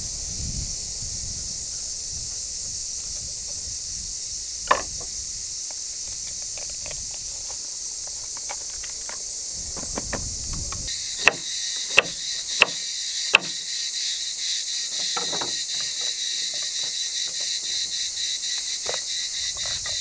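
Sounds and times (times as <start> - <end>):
steady high hiss: 0.0 - 20.0.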